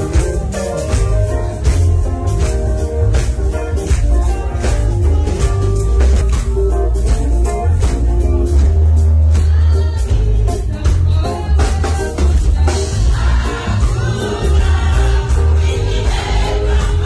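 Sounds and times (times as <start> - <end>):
amplified backing music with bass: 0.0 - 17.0
group of women singing: 9.4 - 17.0.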